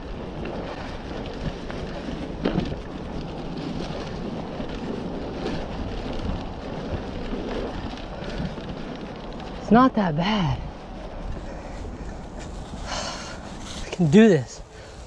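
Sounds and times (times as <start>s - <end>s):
bike tyres rushing on dirt: 0.0s - 15.0s
wind on microphone: 0.0s - 15.0s
bike knocking over bumps: 0.3s - 9.2s.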